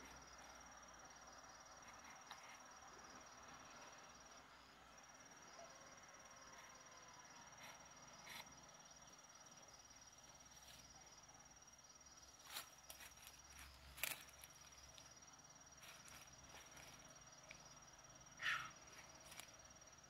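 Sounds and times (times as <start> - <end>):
cricket trill: 0.0 - 20.0.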